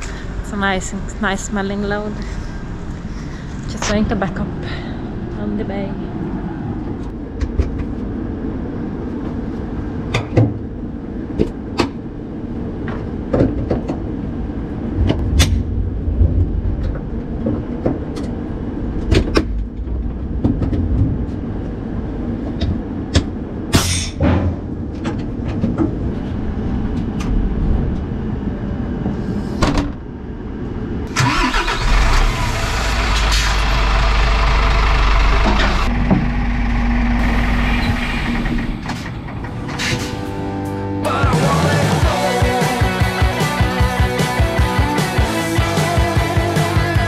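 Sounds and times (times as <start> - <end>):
diesel engine idling: 31.1 - 39.6.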